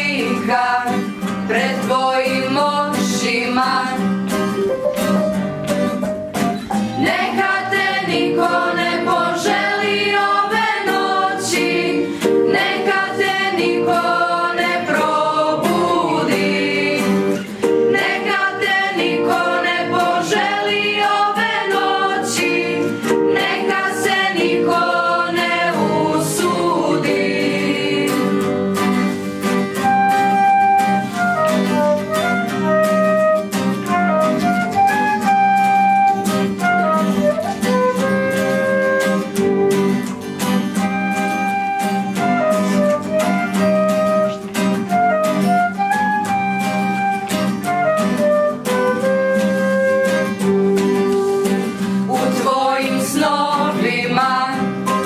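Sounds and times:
children's choir singing: 0.0 - 4.0, 6.8 - 29.1, 52.1 - 55.0
strummed acoustic guitar: 0.0 - 55.0
flute melody: 4.5 - 15.5, 28.3 - 51.8, 54.6 - 55.0.

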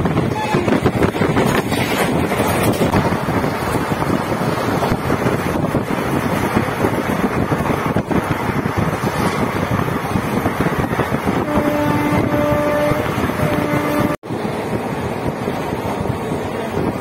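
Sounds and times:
train rumbling: 0.0 - 17.0
wind buffeting microphone: 0.0 - 17.0
train horn: 11.4 - 14.2.

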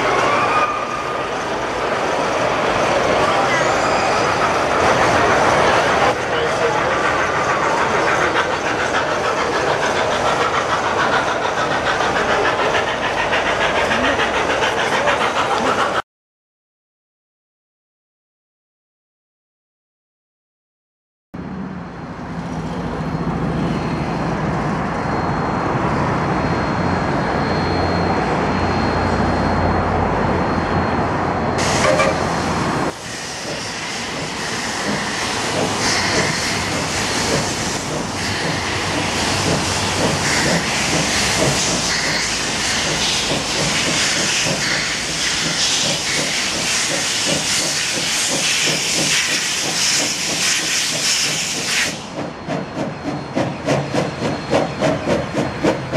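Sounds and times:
steam locomotive hissing: 0.0 - 16.0, 31.6 - 55.9
deep locomotive rumble: 1.0 - 16.0, 22.2 - 55.9.

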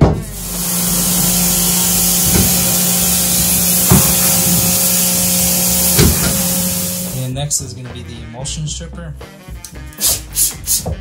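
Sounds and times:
pump motor hum: 0.0 - 7.2
pressure washer water jet hissing: 0.0 - 7.3.

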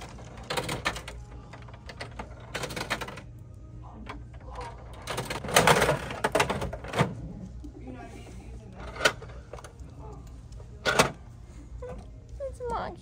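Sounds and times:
tokens clicking into coin slot: 0.0 - 3.3, 4.4 - 7.1.

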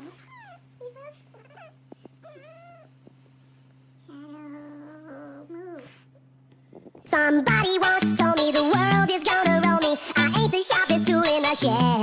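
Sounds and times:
steady low hum: 0.0 - 12.0
cat meowing: 1.5 - 3.0.

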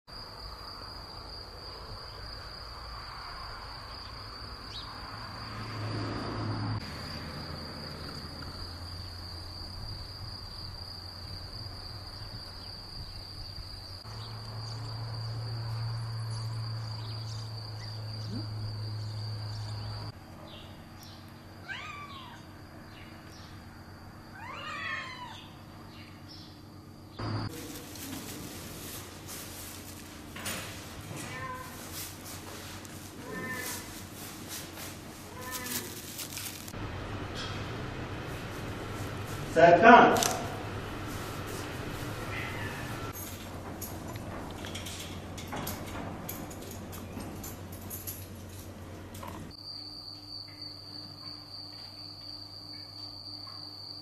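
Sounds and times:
cat meowing: 21.6 - 22.5, 24.3 - 25.6, 31.2 - 31.8, 33.2 - 33.9, 35.3 - 36.0, 42.3 - 43.1
steady low hum: 36.0 - 49.6.

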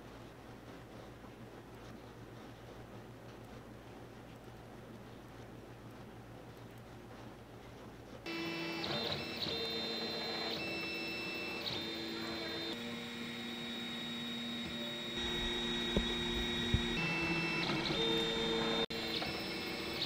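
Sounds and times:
stepper motors whining: 8.3 - 20.0.

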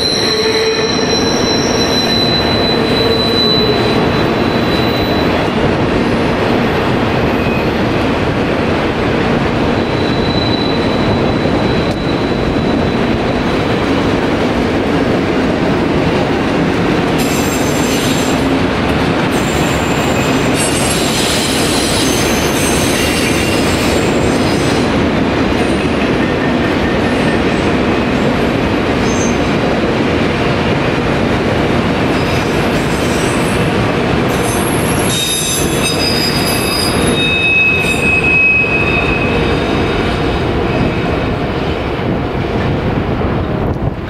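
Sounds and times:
high wheel squeals: 0.0 - 5.3, 9.8 - 13.6, 34.4 - 39.8
train wheels rumbling on rails: 0.0 - 44.0.

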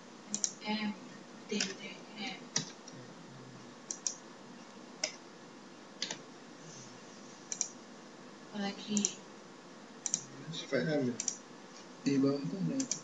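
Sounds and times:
keyboard keystroke clicks: 0.3 - 0.6, 3.9 - 4.2, 7.5 - 7.7, 10.0 - 10.3, 11.2 - 11.4.

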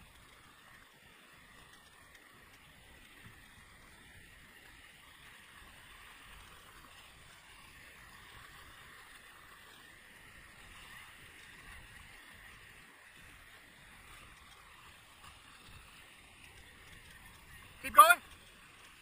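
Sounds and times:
river water rushing over rapids: 17.7 - 19.0.

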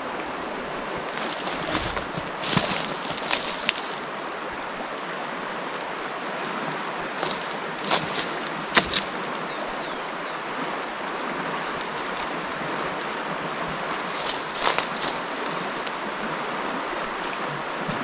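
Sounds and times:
flooded river rushing: 0.0 - 18.0
brush and twigs crackling: 1.1 - 18.0.

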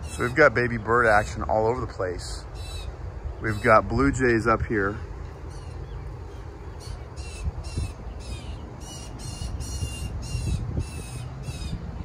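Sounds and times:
blue jay calling: 0.0 - 12.0
wind rumbling on microphone: 0.0 - 12.0.

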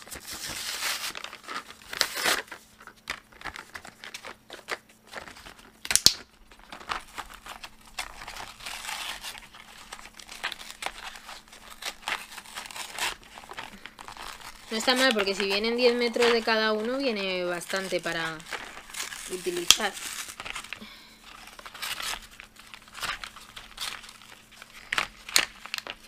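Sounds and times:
plastic packaging crinkling and tearing: 0.0 - 26.0
sharp crack: 5.8 - 6.3.

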